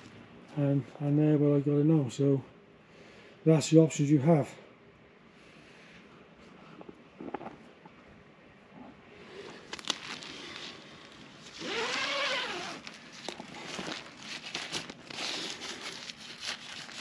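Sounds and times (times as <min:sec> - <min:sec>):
nylon tent fly rustling: 0:09.2 - 0:17.0.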